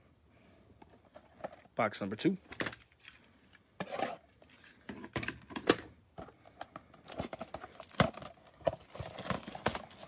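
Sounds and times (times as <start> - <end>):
plastic wrap crinkling and tearing: 7.0 - 10.0.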